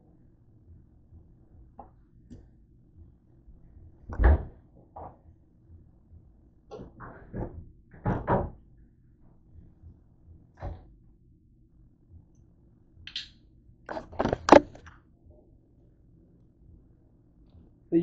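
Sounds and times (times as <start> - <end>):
cupboard door opening and shutting: 6.8 - 8.6, 13.9 - 14.8.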